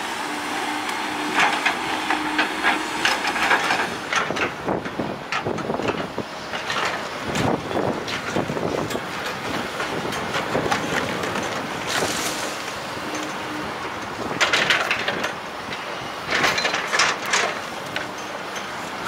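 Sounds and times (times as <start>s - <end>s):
excavator running: 0.0s - 19.0s
crashing and scraping debris: 9.8s - 13.4s.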